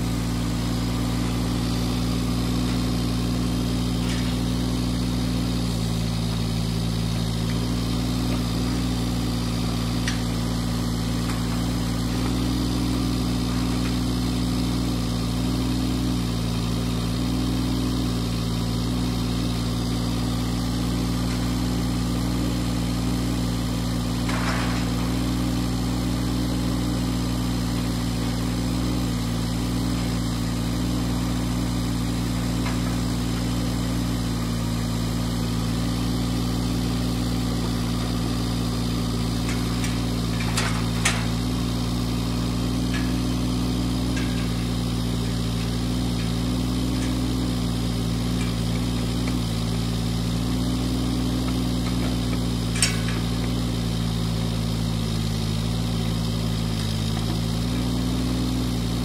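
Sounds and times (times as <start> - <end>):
diesel engine running: 0.0 - 59.0
metal panel clanking: 24.1 - 25.6, 29.8 - 34.8, 37.5 - 49.5, 52.0 - 53.7.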